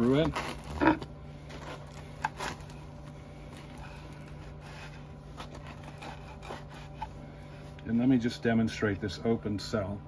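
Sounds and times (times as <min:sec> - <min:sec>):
bread knife sawing crust: 0:04.3 - 0:07.6.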